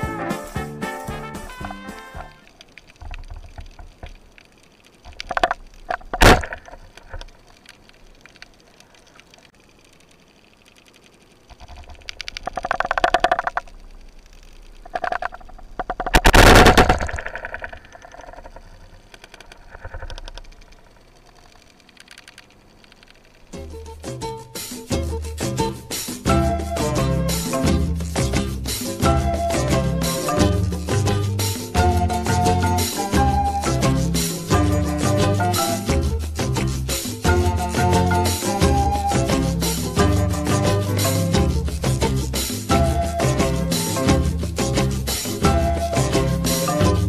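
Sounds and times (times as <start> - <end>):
speargun firing underwater: 14.9 - 18.4.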